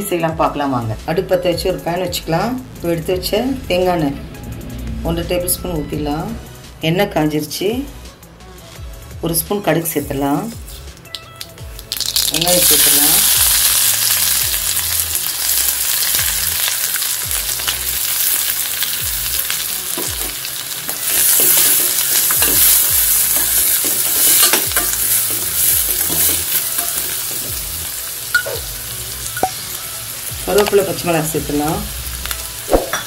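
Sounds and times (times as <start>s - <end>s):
onions sizzling in oil: 11.7s - 33.0s.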